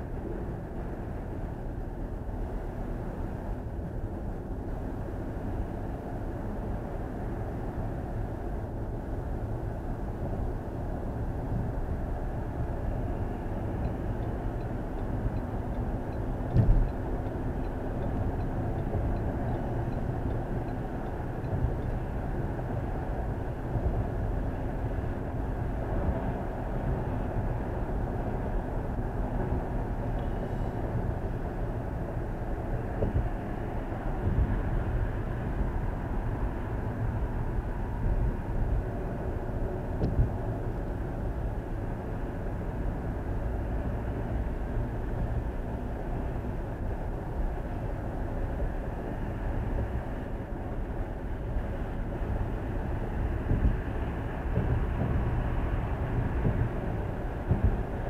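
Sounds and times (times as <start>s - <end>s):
light knocks from road bumps: 15.8s - 17.4s, 54.5s - 55.4s, 56.2s - 58.0s
tyres rumbling on pavement: 49.6s - 58.0s.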